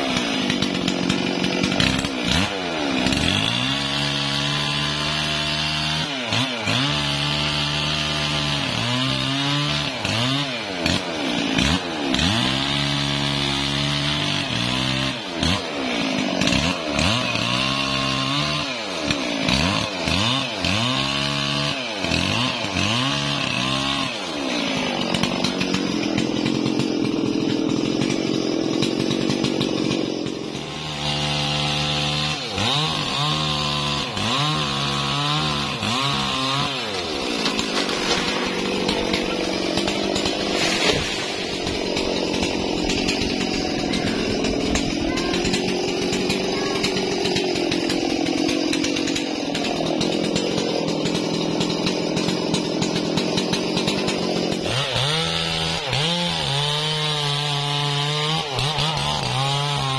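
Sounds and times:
chainsaw engine revving: 0.0 - 59.9.

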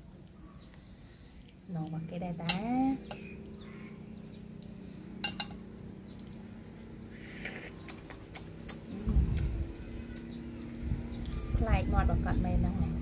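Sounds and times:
steady low hum: 0.0 - 13.0
metal spoon on ceramic bowl: 2.4 - 3.3, 5.2 - 5.6.

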